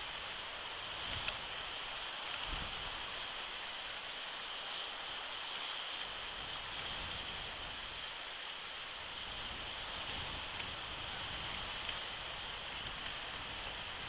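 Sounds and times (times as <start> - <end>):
microphone hiss: 0.0 - 14.0
wind rumble: 5.3 - 14.0.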